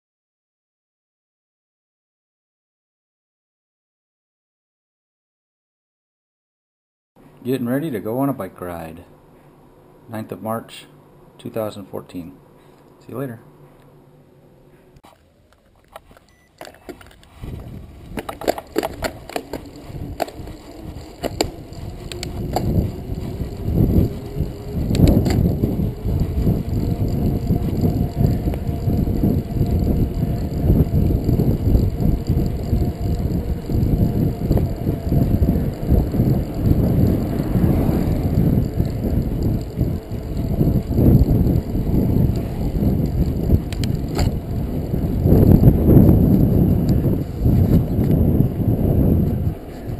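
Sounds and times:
tyre noise on asphalt: 15.0 - 49.9
bicycle clicks: 15.5 - 49.9
wind buffeting microphone: 17.1 - 49.9.

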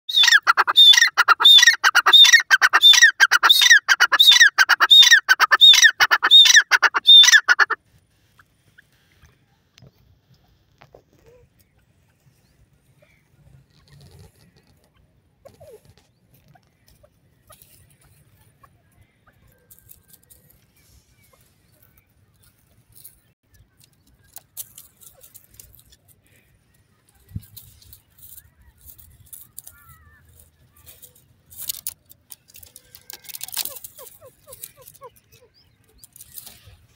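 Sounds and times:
francolin calling: 0.1 - 7.8
dry straw rustling and clicks: 19.5 - 20.9, 21.8 - 36.9.

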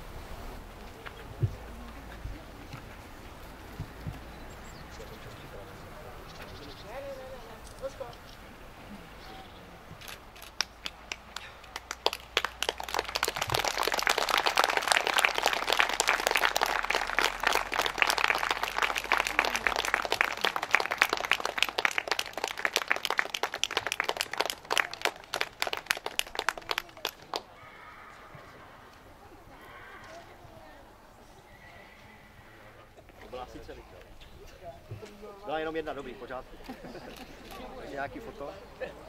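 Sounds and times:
crowd applauding: 10.5 - 27.6.

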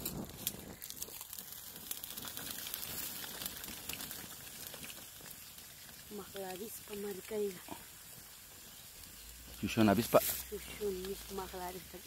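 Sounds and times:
flame hiss: 0.0 - 12.0
torch flame crackling and popping: 0.0 - 12.0.

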